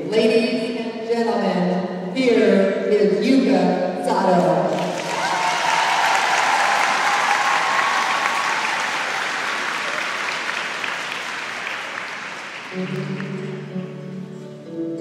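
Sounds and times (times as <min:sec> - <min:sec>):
audience applauding: 0:04.7 - 0:13.8
music with steady pitched notes: 0:12.7 - 0:15.0.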